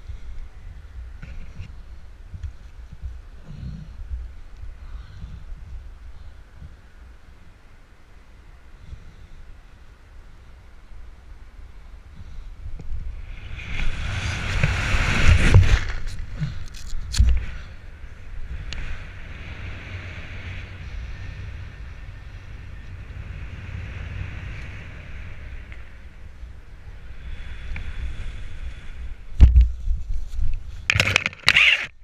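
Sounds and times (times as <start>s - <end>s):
wind rushing over microphone: 0.0s - 32.0s
sharp cracks: 30.9s - 32.0s.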